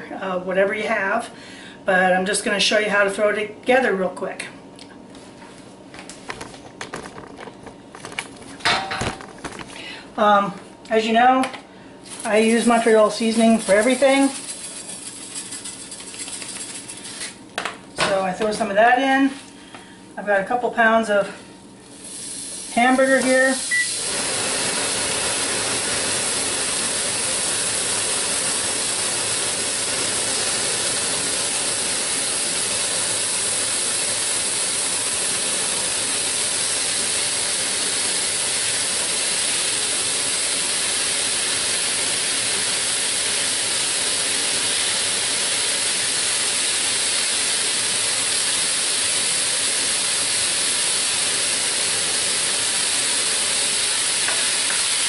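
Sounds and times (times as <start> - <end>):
ground beef sizzling in oil: 21.9 - 55.0.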